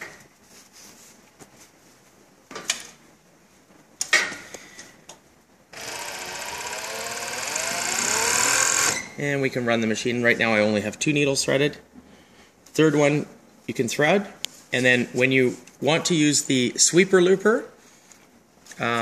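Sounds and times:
sewing machine running fast: 5.8 - 9.0.

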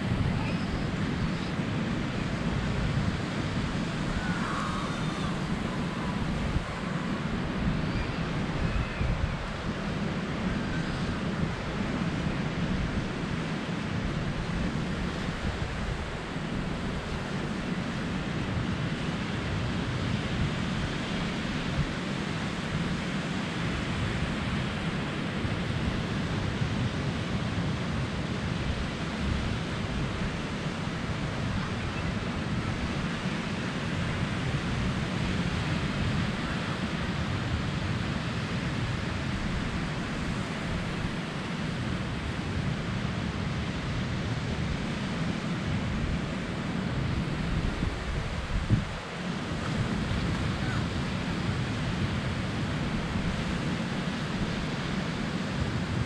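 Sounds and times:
surf breaking on beach: 0.0 - 21.6
wind buffeting microphone: 0.0 - 23.0, 23.7 - 56.0.

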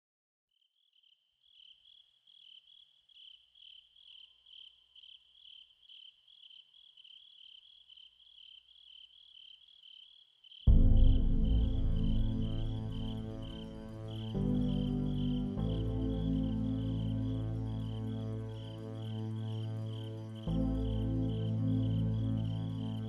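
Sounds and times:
crickets chirping: 0.7 - 23.0
loud low music: 10.7 - 23.0.

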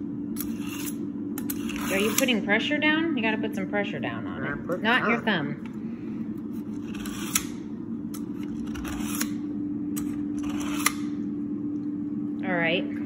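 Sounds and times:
low hum: 0.0 - 13.0
knife scraping through sharpener: 0.4 - 2.4, 6.6 - 7.6, 8.2 - 9.4, 10.4 - 11.0.

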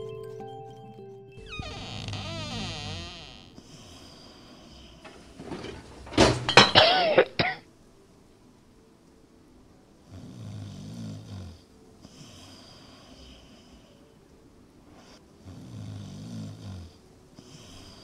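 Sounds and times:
person snoring: 10.1 - 14.0.

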